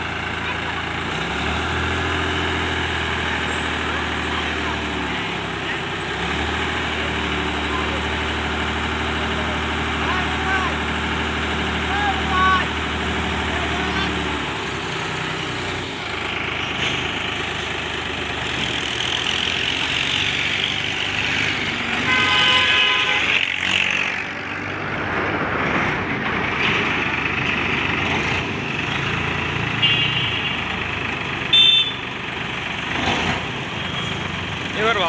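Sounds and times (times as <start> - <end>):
tractor engine running: 0.0 - 35.0
vehicle horn: 22.0 - 23.5, 29.8 - 30.6, 31.5 - 32.0.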